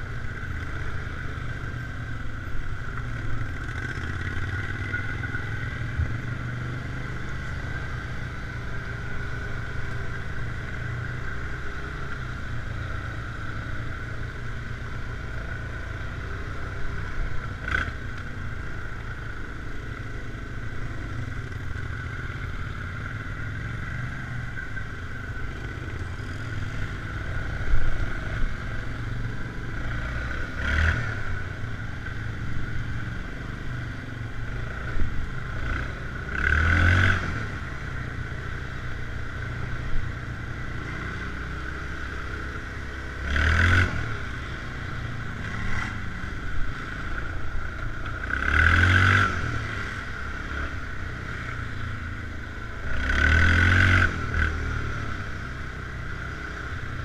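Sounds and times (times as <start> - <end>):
quad bike engine running: 0.0 - 57.0.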